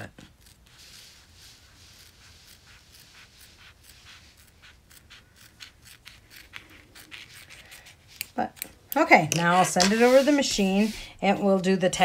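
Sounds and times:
scissors snipping vinyl: 0:01.9 - 0:10.7.

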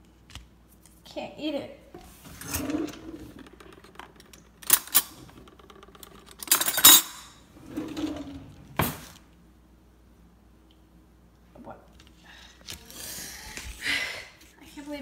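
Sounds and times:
spoons and forks clattering: 0:06.5 - 0:07.4.

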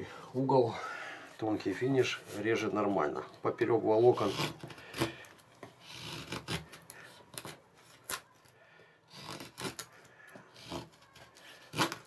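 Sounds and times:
knife scraping wood: 0:04.0 - 0:08.2, 0:09.1 - 0:09.9, 0:10.5 - 0:12.0.

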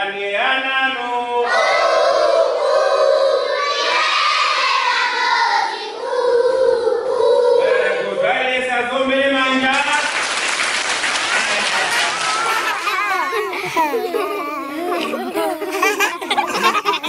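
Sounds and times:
children singing in chorus: 0:01.5 - 0:07.8, 0:11.8 - 0:17.0.

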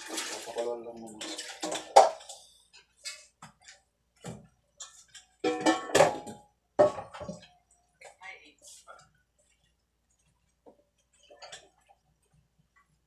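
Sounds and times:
kitchenware clattering at sink: 0:00.0 - 0:07.5.

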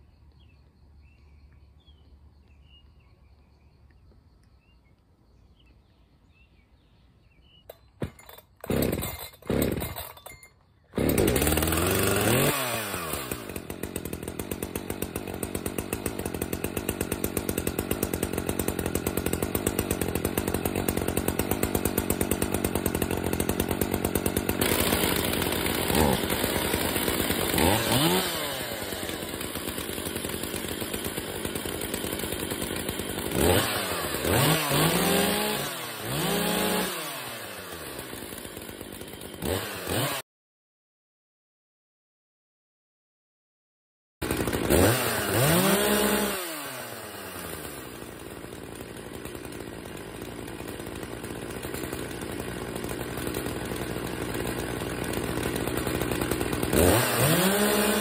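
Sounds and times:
chainsaw engine running: 0:07.7 - 0:40.2, 0:44.2 - 0:58.0
chainsaw starter cord pulls: 0:07.7 - 0:40.2, 0:44.2 - 0:58.0.

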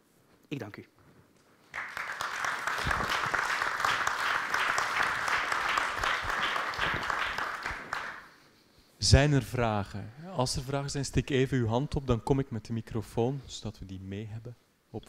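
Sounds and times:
audience applauding: 0:01.7 - 0:08.3.

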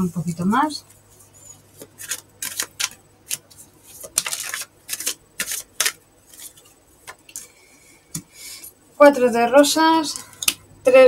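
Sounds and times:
cards being shuffled: 0:01.8 - 0:07.5.

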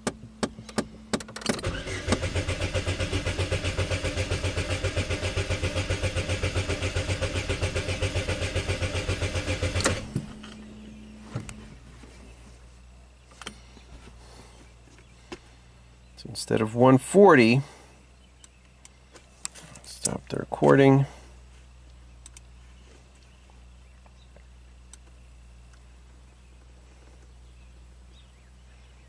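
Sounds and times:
starter motor cranking engine: 0:00.7 - 0:10.6.

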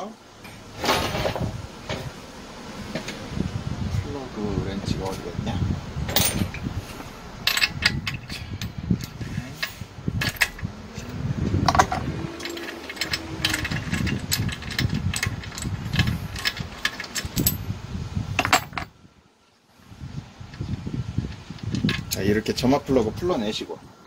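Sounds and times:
bumps against engine: 0:04.9 - 0:17.6
metal wrench clinking and clicking: 0:07.5 - 0:17.6.

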